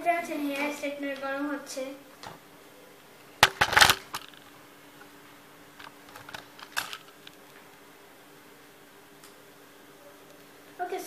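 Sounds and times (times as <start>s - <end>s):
paper receipt tapping and rustling: 3.4s - 4.5s, 5.8s - 7.5s
rustling clatter: 3.4s - 4.5s, 5.8s - 7.5s.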